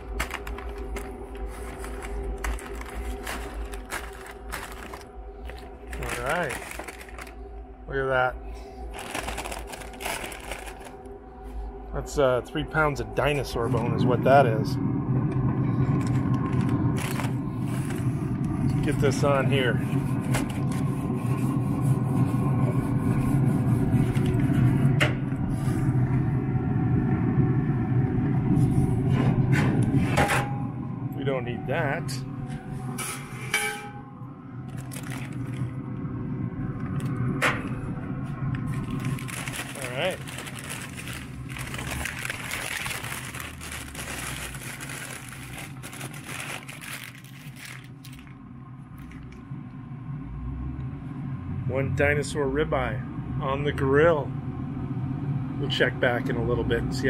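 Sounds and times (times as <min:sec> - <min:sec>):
paper being crumpled: 0:00.0 - 0:07.4, 0:08.8 - 0:11.1, 0:15.9 - 0:21.4, 0:34.7 - 0:35.7, 0:38.6 - 0:48.4
mechanical hum and rumble: 0:00.0 - 0:57.0.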